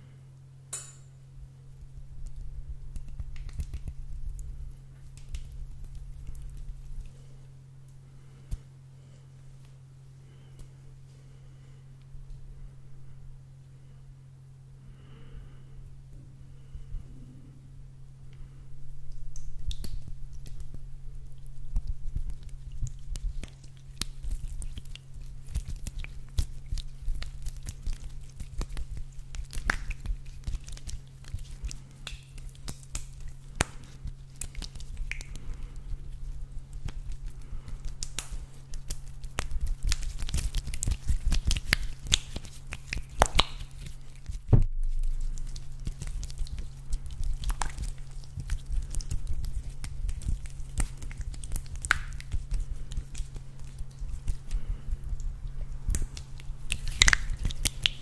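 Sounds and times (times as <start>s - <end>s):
steady low hum: 0.0s - 58.0s
squishy toy squelching: 22.2s - 58.0s
squishy toy popping: 39.4s - 46.6s, 56.0s - 58.0s.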